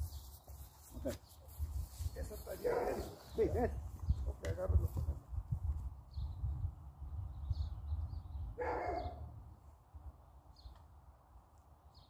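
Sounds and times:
wind rumbling on microphone: 0:01.5 - 0:10.7.

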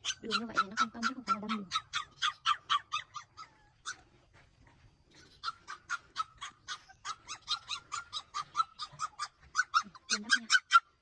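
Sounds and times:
dog yapping: 0:00.0 - 0:04.1, 0:05.2 - 0:11.0.

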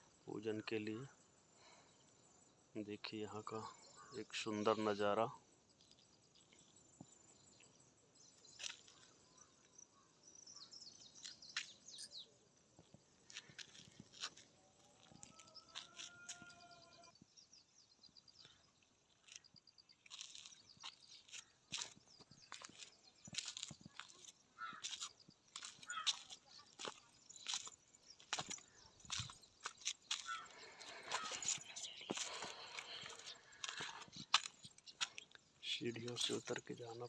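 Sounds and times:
bird chirps: 0:05.7 - 0:37.0
drawn-out bird call: 0:30.0 - 0:36.5.

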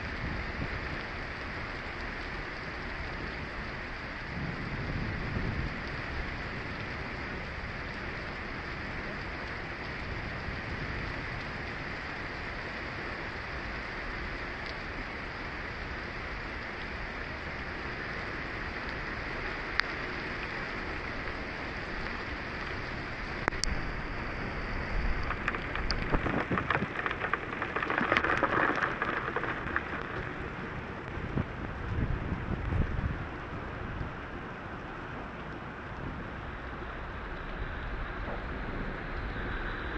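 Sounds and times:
heavy rain on vehicle roof: 0:16.8 - 0:31.3
low thunder rumble: 0:35.7 - 0:39.9.

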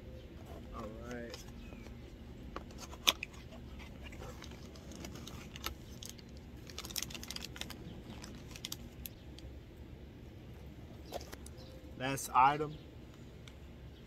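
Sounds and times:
packaging crinkling: 0:02.8 - 0:09.2.

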